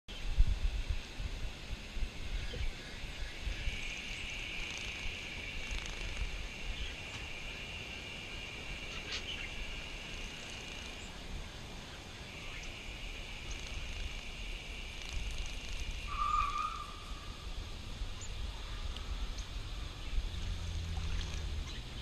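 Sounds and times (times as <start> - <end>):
insects buzzing: 0.1 - 22.0
low rumble: 16.7 - 22.0.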